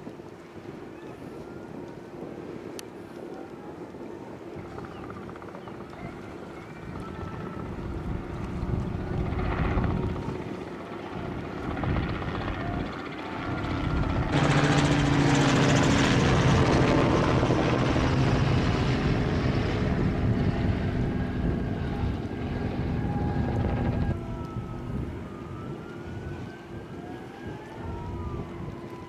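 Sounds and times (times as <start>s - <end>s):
low hums: 0.1s - 29.0s
noisy rush: 1.6s - 29.0s
engine drone: 11.2s - 25.4s.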